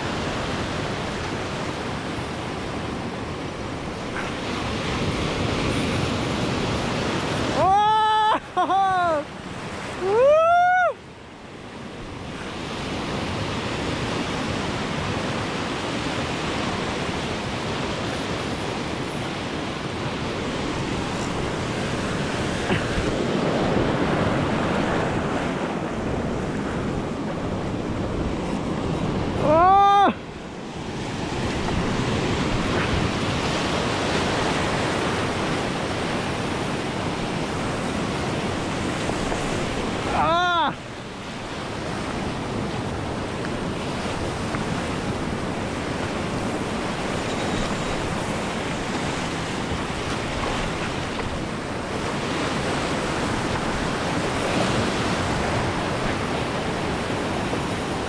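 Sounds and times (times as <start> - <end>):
wind on microphone: 9.4 - 58.0
surf breaking over rocks: 11.9 - 58.0.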